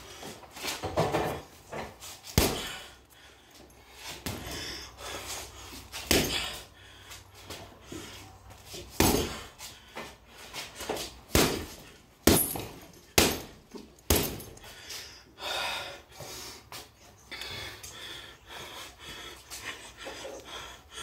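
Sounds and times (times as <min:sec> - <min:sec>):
punches thudding on heavy bag: 0:02.3 - 0:02.9, 0:06.0 - 0:06.6, 0:08.9 - 0:09.5, 0:11.3 - 0:14.6.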